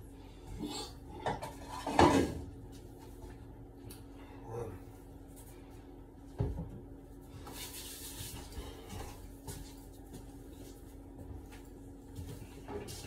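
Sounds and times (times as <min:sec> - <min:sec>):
steady low hum: 0:00.0 - 0:13.0
soft rubbing and rustling: 0:07.2 - 0:13.0.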